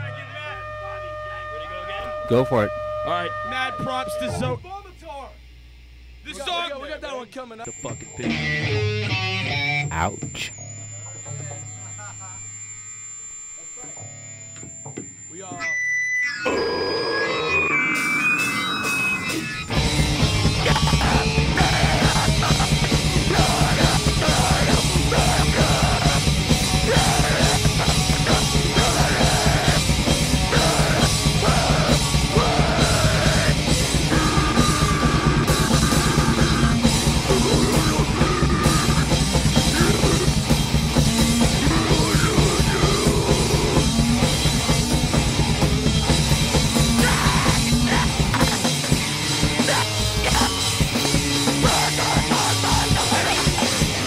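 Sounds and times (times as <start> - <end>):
heavy band playing: 18.3 - 54.0
person yelling vocals: 20.6 - 35.5, 37.2 - 40.3, 41.6 - 43.8, 47.0 - 48.2, 49.6 - 50.6, 51.6 - 53.7.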